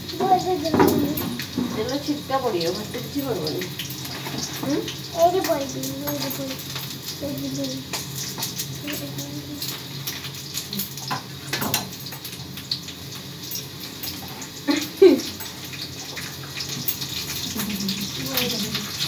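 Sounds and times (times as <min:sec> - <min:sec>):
water running from tap: 0:00.0 - 0:19.0
small clinks: 0:05.4 - 0:12.4.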